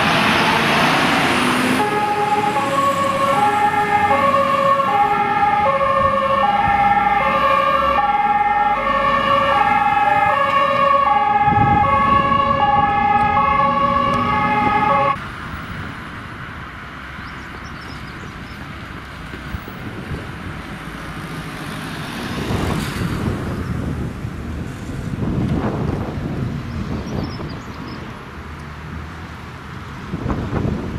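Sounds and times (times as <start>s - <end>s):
two-tone siren: 0.0s - 15.2s
fire engine noise: 0.0s - 30.9s
traffic rumble: 0.0s - 30.9s
wind: 0.0s - 30.9s.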